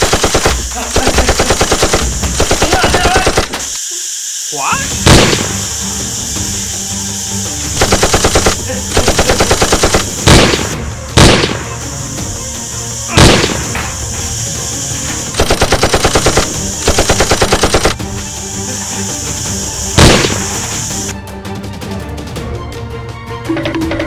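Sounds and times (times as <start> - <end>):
automatic gunfire bursts: 0.0 - 3.6, 7.8 - 11.6, 13.1 - 13.7, 15.4 - 18.0, 20.0 - 20.8
heavy gunshot bangs: 5.0 - 5.6, 7.8 - 11.8, 13.1 - 13.9, 20.0 - 20.7.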